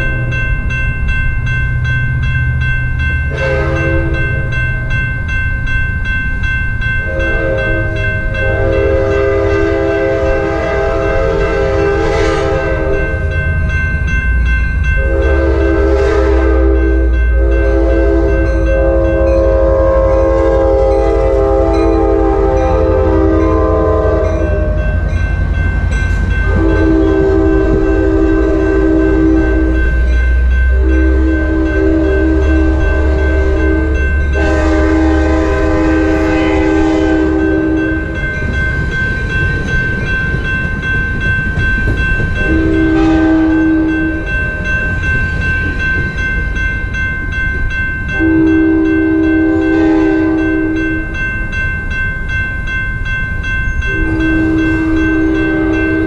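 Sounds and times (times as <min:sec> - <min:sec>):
crossing bell ringing: 0:00.0 - 0:56.0
deep rumble of passing train: 0:00.0 - 0:56.0
train horn blasts: 0:03.3 - 0:04.5, 0:07.1 - 0:13.3, 0:15.0 - 0:25.1, 0:26.4 - 0:30.0, 0:30.6 - 0:38.2, 0:42.4 - 0:44.4, 0:48.1 - 0:51.0, 0:53.8 - 0:56.0.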